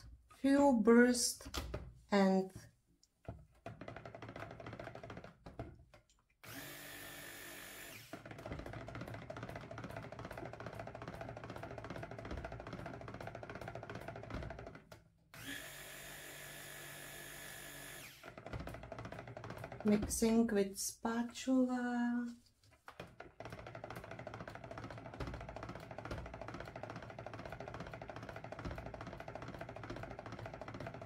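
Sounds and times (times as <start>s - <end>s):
stick blender motor running: 6.4s - 20.6s, 22.9s - 31.0s.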